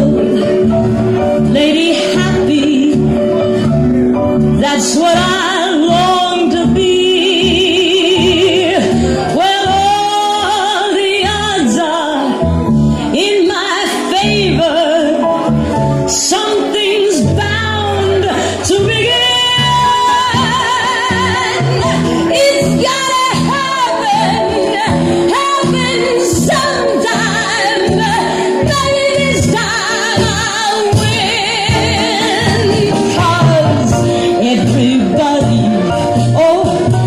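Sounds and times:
instrumental backing with bass: 0.0 - 37.0
person singing with vibrato: 0.0 - 37.0.

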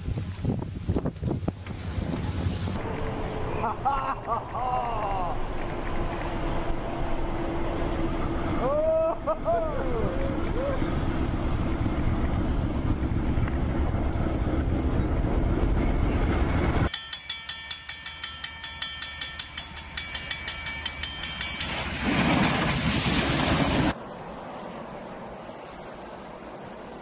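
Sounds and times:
diesel locomotive rumble: 1.4 - 16.9
bell ringing rapidly: 16.9 - 22.1
rush of thrown snow: 21.8 - 24.0.

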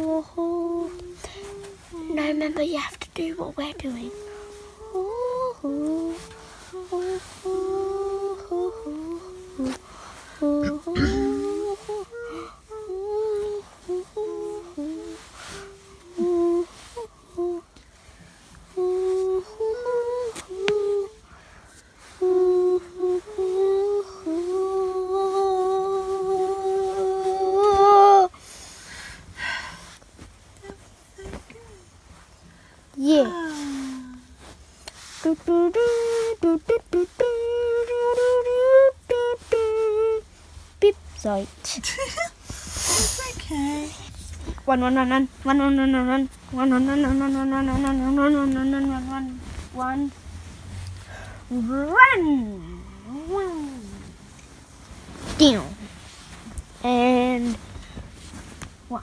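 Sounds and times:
child humming a tune: 0.0 - 17.7, 22.0 - 28.4, 30.6 - 31.9, 33.0 - 34.5, 35.2 - 50.2, 51.5 - 54.2
child humming: 4.0 - 17.7, 42.2 - 44.1.

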